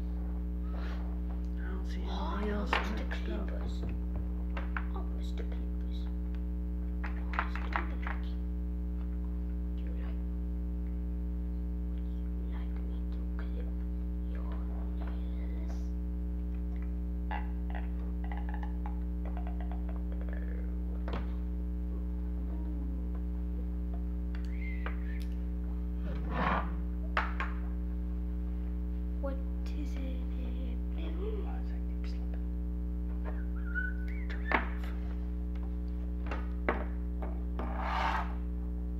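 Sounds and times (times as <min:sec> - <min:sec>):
low electrical hum: 0:00.0 - 0:38.9.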